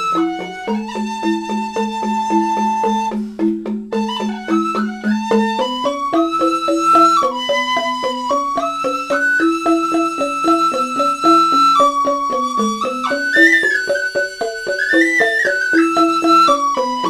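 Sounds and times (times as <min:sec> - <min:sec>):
bamboo flute melody: 0:00.0 - 0:17.0
bamboo xylophone notes: 0:00.0 - 0:17.0.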